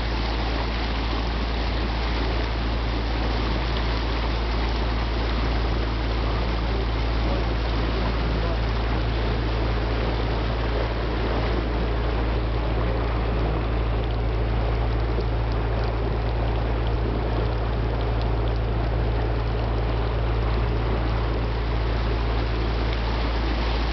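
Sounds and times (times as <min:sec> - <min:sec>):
boat engine droning: 0:00.0 - 0:23.9
water rushing along hull: 0:00.0 - 0:23.9.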